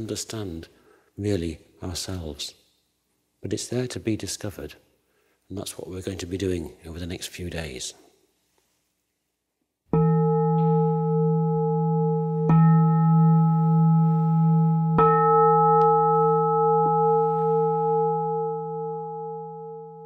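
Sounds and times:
meditation bowl bell ringing: 9.9 - 20.0.

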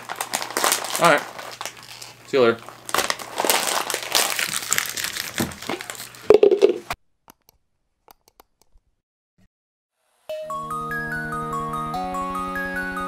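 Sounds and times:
snack packaging crinkling: 0.0 - 6.8.

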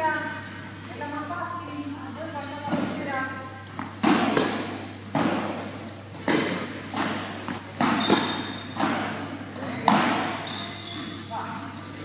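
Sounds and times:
tennis balls hit and bouncing: 2.6 - 3.1, 3.7 - 11.2
shoe squeaks: 5.6 - 12.0.

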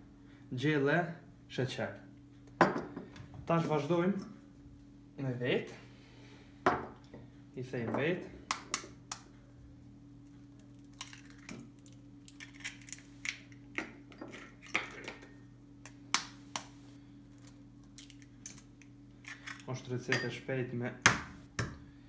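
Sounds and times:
faint steady hum: 0.0 - 22.0
eggshells cracking on a bowl: 10.5 - 13.9, 17.3 - 19.7.

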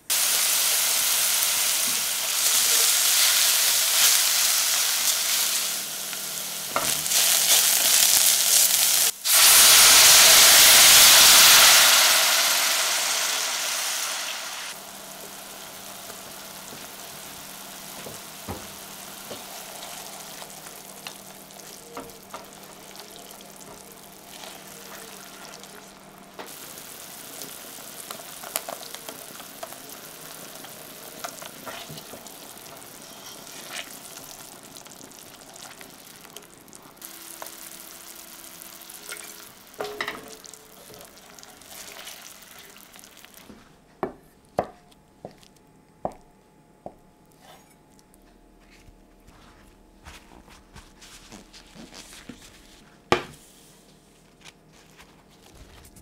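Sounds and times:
sauce sizzling and bubbling: 0.0 - 43.7
spatula scraping a saucepan: 31.5 - 32.2, 33.0 - 34.0.

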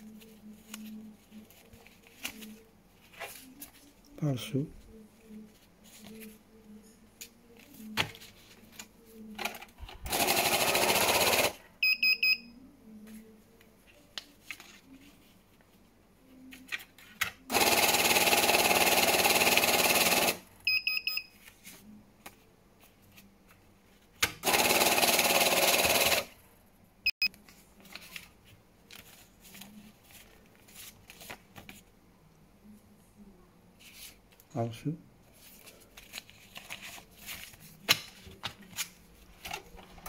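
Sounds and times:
rustling of banknotes: 0.0 - 4.1, 27.4 - 31.9, 35.3 - 40.0
banknote counter whirring: 10.1 - 11.6, 17.5 - 20.4, 24.4 - 26.3.

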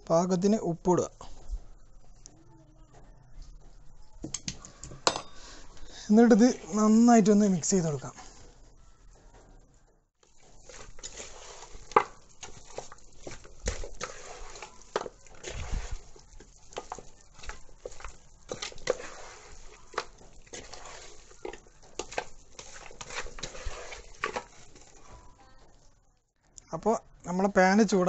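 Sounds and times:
wet squishing of raw chicken: 10.2 - 25.4.

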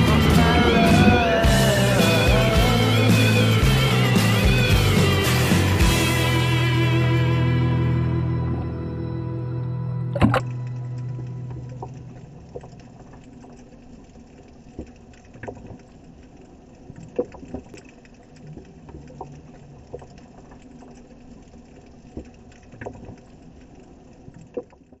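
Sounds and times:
water lapping against boat hull: 10.2 - 25.0.

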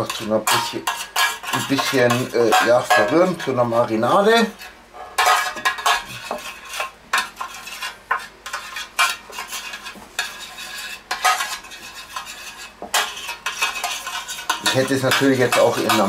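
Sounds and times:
spoon scraping metal tray: 0.0 - 16.0.

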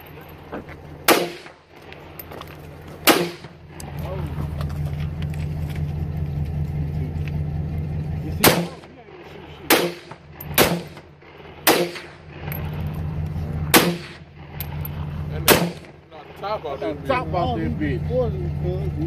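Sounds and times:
rifle shots echoing: 1.0 - 1.7, 3.0 - 3.8, 8.4 - 12.5, 13.7 - 16.0.

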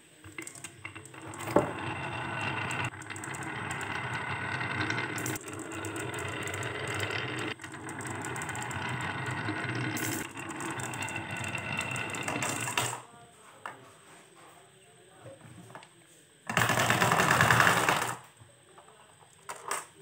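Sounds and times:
marbles rolling on wood: 0.2 - 13.1, 16.5 - 20.0
marbles clicking together: 0.3 - 13.0.

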